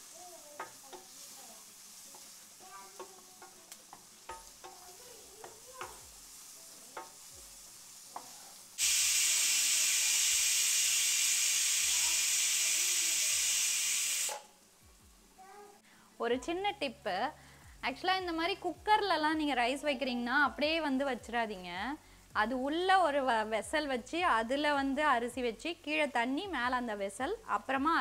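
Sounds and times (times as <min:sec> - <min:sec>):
onions frying in oil: 0:00.0 - 0:15.2, 0:22.4 - 0:28.0
spatula clicking and scraping: 0:02.0 - 0:07.2
pressure cooker whistle hissing steam: 0:08.8 - 0:14.5.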